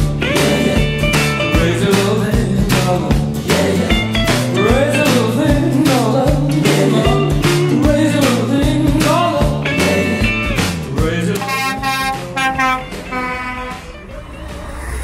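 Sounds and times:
rock music with singing: 0.0s - 15.0s.

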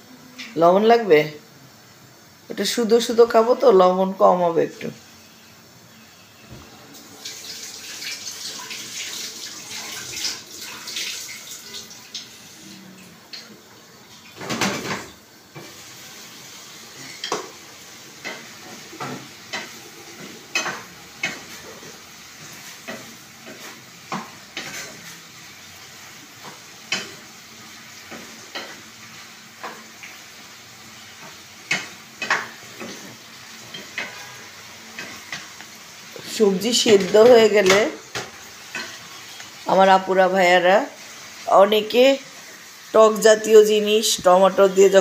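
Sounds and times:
frying sizzle: 0.0s - 45.0s
wooden spatula scraping frying pan: 15.6s - 25.4s, 31.1s - 39.6s.

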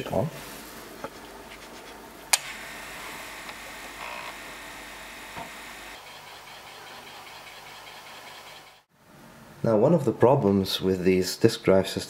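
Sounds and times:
disk drive humming: 2.3s - 8.8s.

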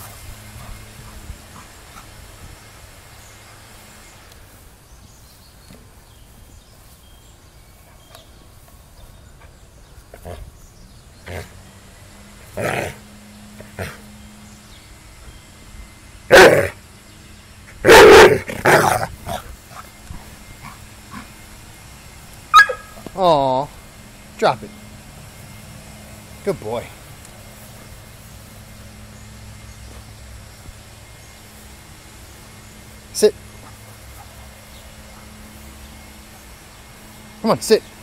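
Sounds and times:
dog barking: 17.9s - 18.4s, 22.5s - 23.0s.

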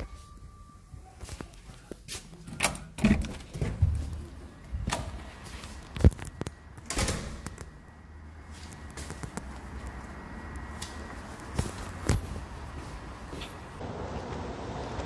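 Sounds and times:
footsteps in sandals on tile: 8.5s - 13.8s.

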